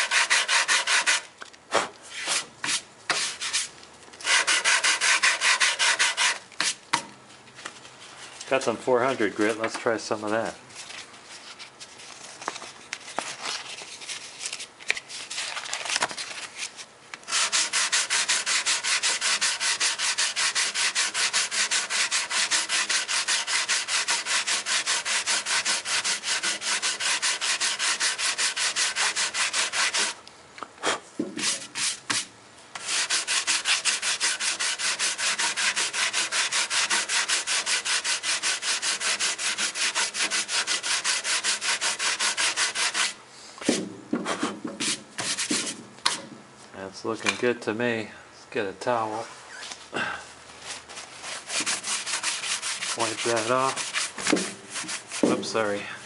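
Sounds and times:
sandpaper rubbing on wood: 0.0 - 1.3, 2.1 - 6.8, 17.3 - 30.2, 31.4 - 43.2, 44.3 - 46.2, 50.6 - 55.6.

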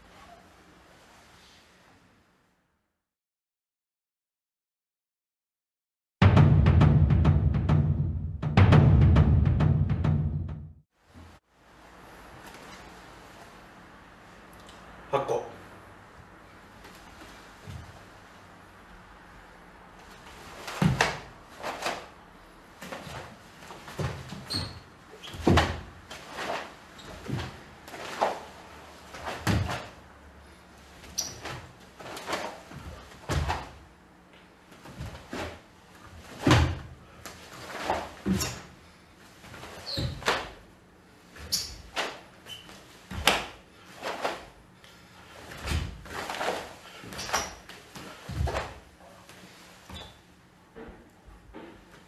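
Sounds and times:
skin squeaking on boards: 24.4 - 25.5, 31.1 - 31.5, 39.8 - 40.3, 41.4 - 42.8, 47.1 - 47.6.

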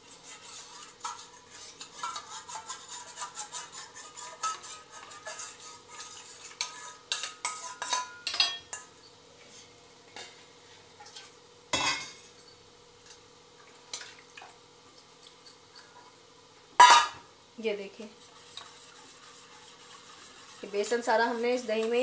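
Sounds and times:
whisk clinking in steel bowl: 0.0 - 8.9.

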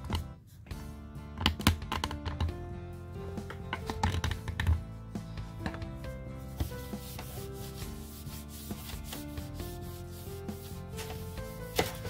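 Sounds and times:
background music of held notes: 0.0 - 12.0
tissue wiping metal case: 6.4 - 12.0.

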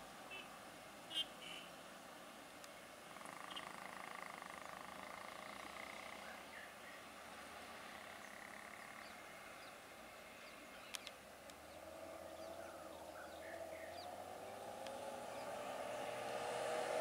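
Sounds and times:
vehicle engine hum: 3.1 - 17.0
bird chirps: 3.2 - 7.0.

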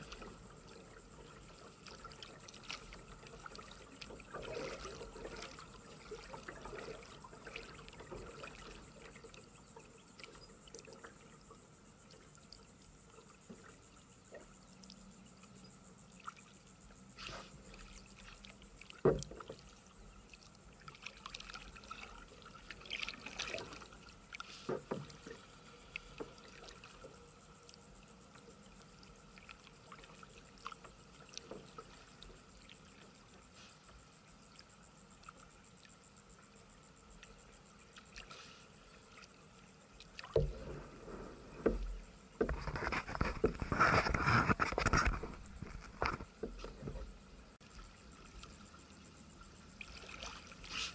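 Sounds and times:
churning water splashing: 0.0 - 9.4, 17.2 - 27.8, 39.9 - 48.8, 49.4 - 50.9
paddle knocks and drips: 0.0 - 11.2, 17.2 - 27.8, 28.4 - 33.2, 39.1 - 48.7, 49.8 - 50.9.

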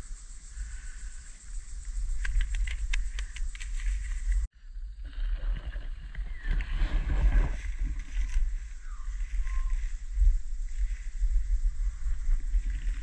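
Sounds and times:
wind rumbling on microphone: 0.0 - 13.0
sharp clicks: 2.1 - 4.4.

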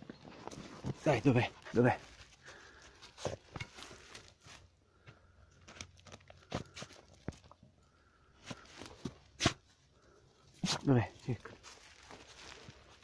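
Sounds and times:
dog digging in dry leaves: 10.6 - 13.0.

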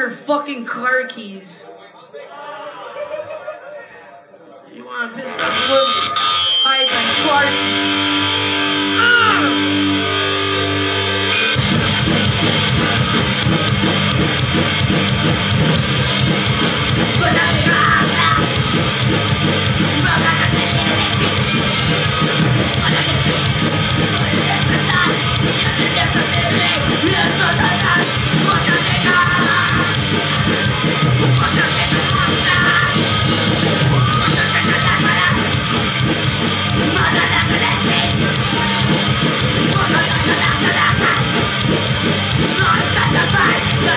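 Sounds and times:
distorted electric guitar: 5.2 - 43.9
bass guitar: 5.4 - 43.9
drums: 5.4 - 43.9
shouted vocals: 8.8 - 9.7, 16.9 - 18.7, 19.7 - 30.6, 36.8 - 41.6.

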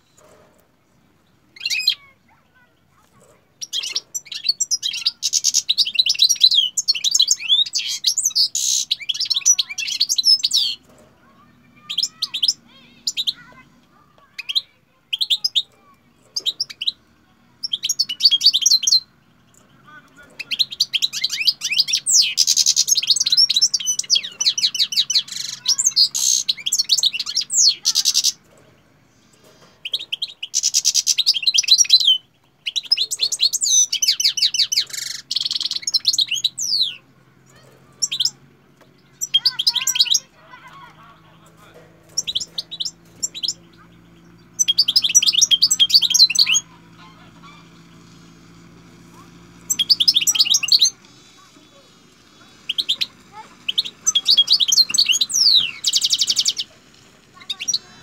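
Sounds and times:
finch twittering: 0.0 - 58.0.

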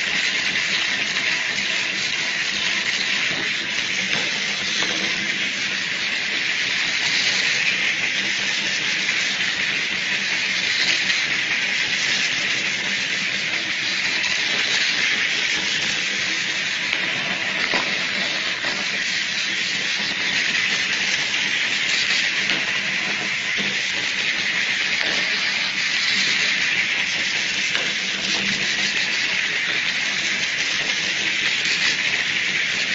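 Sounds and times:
small motors whirring: 0.0 - 32.9.

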